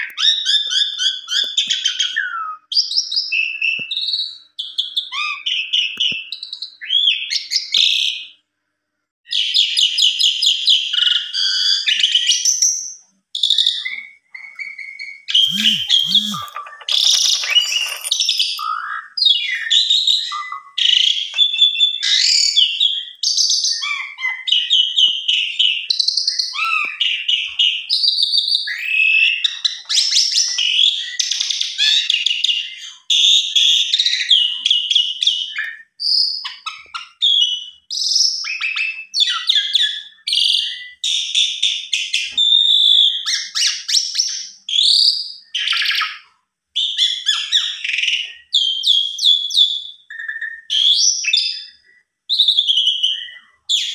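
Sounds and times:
starling singing: 0:13.8 - 0:25.8.

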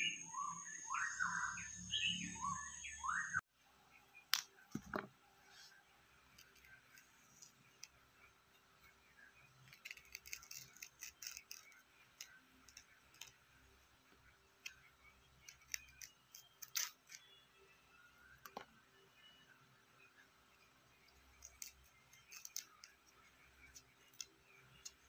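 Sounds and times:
knife clicking and scraping beans: 0:06.3 - 0:08.0, 0:09.6 - 0:13.4, 0:15.4 - 0:17.4, 0:21.3 - 0:25.0.

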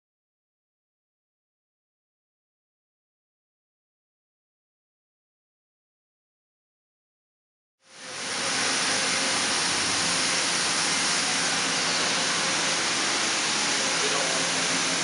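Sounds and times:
machining center hiss: 0:07.9 - 0:15.0.

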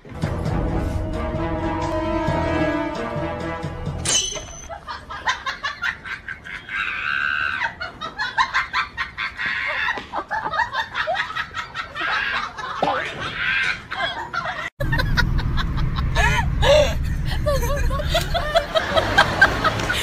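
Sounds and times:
music: 0:00.0 - 0:04.1.

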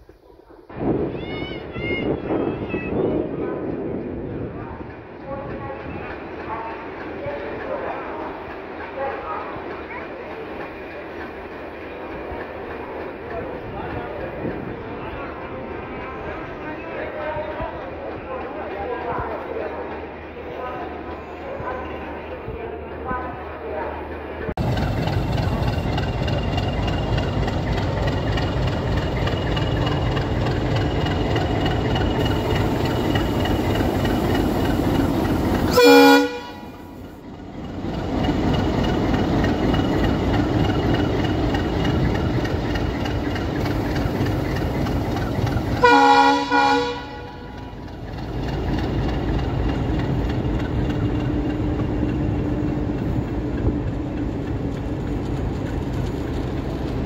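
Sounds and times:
diesel locomotive running: 0:01.2 - 0:57.0
locomotive horn blasts: 0:35.7 - 0:36.8, 0:45.8 - 0:47.6.

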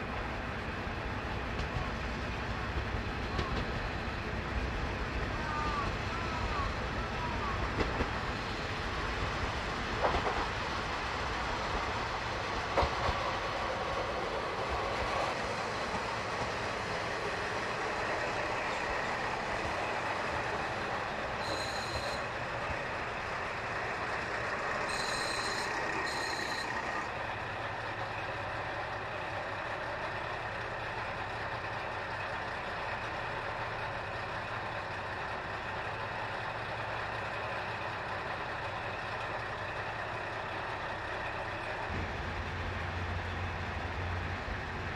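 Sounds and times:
diesel railcar engine and wheel rumble: 0:00.0 - 0:44.9
short high electronic beep: 0:21.4 - 0:22.2, 0:24.9 - 0:26.7.

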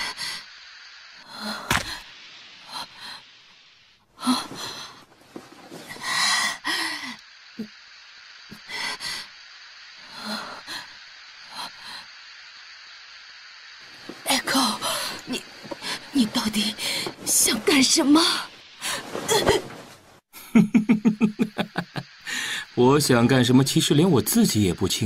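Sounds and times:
steady background hiss: 0:00.0 - 0:25.0
person gasping and breathing hard: 0:01.7 - 0:02.0.

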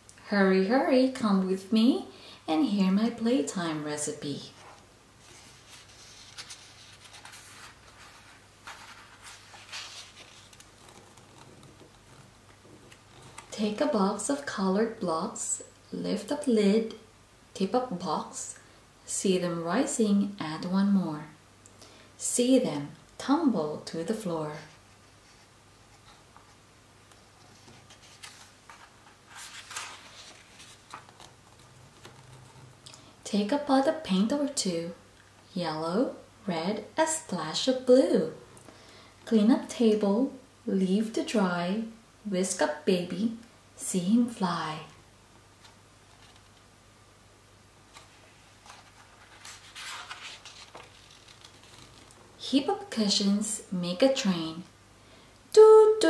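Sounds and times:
book page turning: 0:04.6 - 0:13.6, 0:24.7 - 0:32.8, 0:45.6 - 0:46.7, 0:47.9 - 0:52.2.

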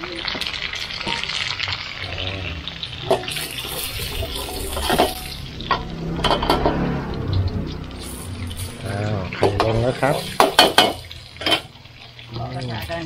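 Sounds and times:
wok stir-frying hiss: 0:00.0 - 0:13.0
metal spatula clanking on pan: 0:03.1 - 0:06.8, 0:09.3 - 0:11.8.

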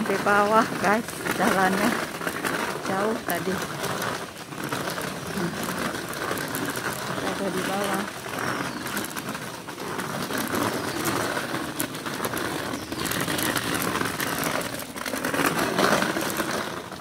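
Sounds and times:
trolley wheels rattling on concrete: 0:00.0 - 0:17.0.

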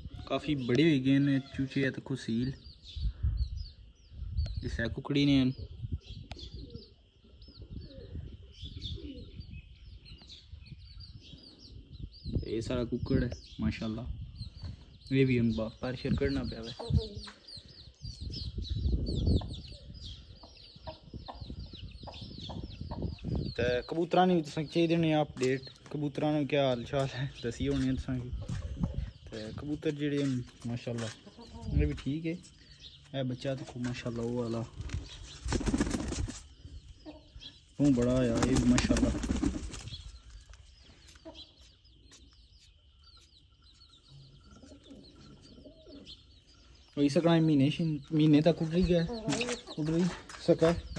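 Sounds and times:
chicks peeping: 0:00.0 - 0:50.9
pigeon flapping wings: 0:35.4 - 0:36.4, 0:38.3 - 0:39.9.

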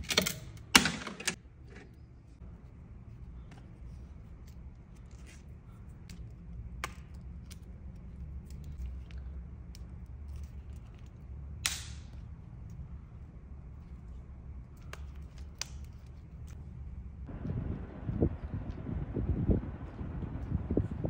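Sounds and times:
low steady hum: 0:00.0 - 0:21.0
plastic hanger arms snapping: 0:11.6 - 0:12.2.

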